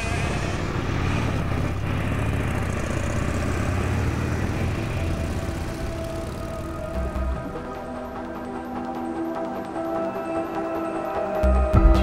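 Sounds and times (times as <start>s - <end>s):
motorcycles riding off: 0.0s - 8.6s.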